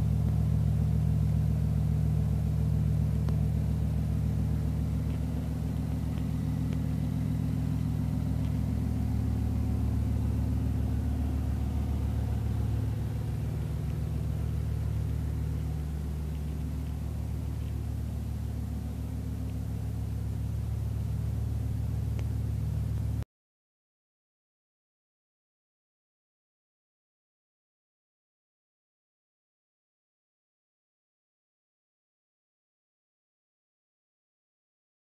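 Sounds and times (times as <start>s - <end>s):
car engine idling: 0.0s - 23.2s.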